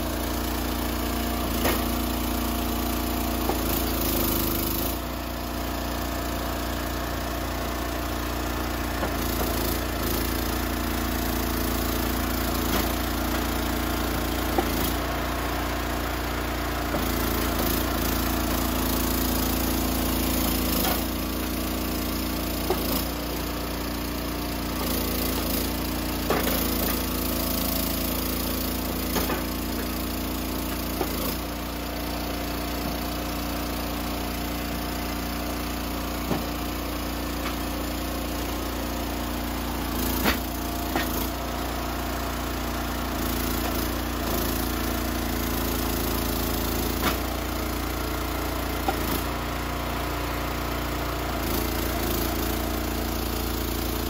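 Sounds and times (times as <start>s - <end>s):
engine running: 0.0s - 54.0s.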